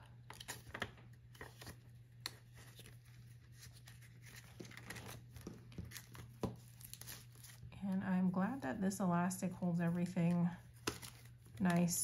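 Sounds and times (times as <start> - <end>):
paper banknotes rustling: 0.4 - 7.7.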